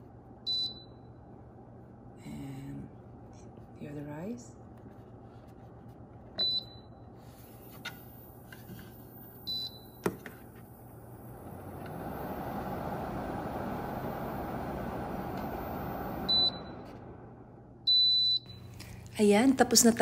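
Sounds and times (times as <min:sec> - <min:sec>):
fan rush of air: 0:07.2 - 0:20.0.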